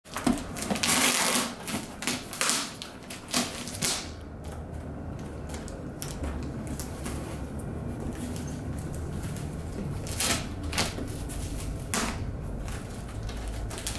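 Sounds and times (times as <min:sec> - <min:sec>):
puppy tearing cardboard and tape: 0:00.1 - 0:04.5, 0:08.1 - 0:13.9
paws scratching cardboard: 0:06.1 - 0:13.9.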